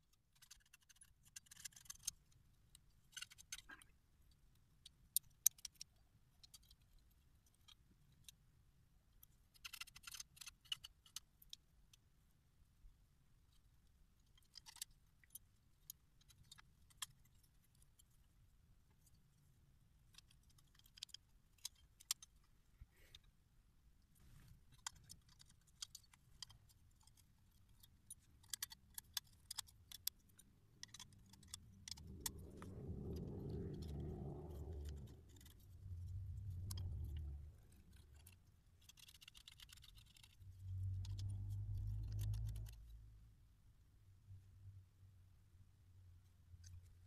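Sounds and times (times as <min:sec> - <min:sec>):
low rumble: 0:31.2 - 0:38.4.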